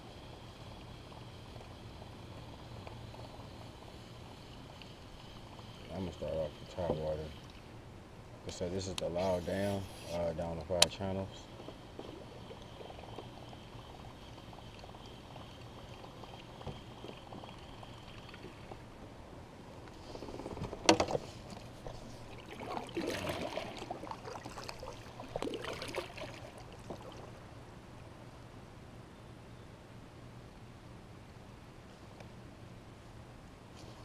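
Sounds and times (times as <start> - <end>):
water trickling and splashing: 2.4 - 7.8, 11.2 - 18.9, 21.2 - 27.5.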